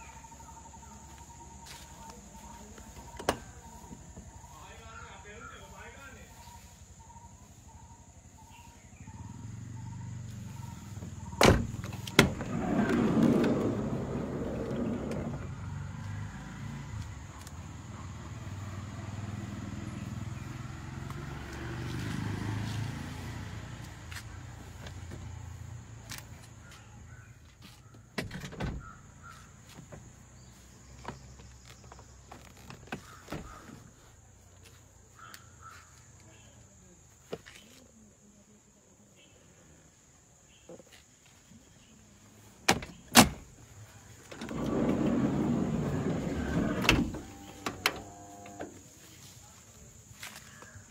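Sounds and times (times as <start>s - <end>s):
van door rolling rumble: 9.2s - 16.1s, 44.2s - 48.8s.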